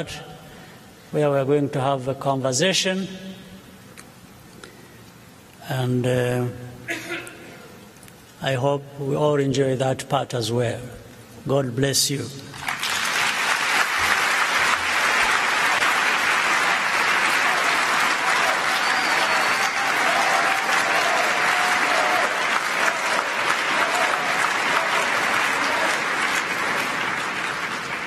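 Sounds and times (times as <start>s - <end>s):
large audience applauding: 12.5s - 28.0s.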